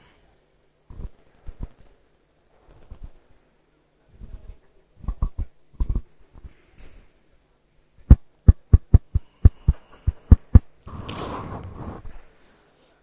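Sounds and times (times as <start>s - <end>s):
short rush of noise: 10.1s - 12.2s.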